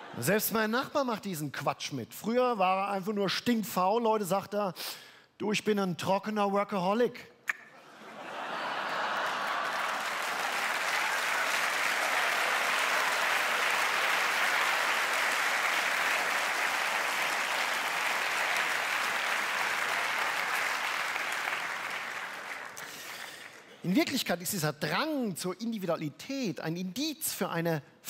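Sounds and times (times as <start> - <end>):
audience applauding: 8.4 - 23.8.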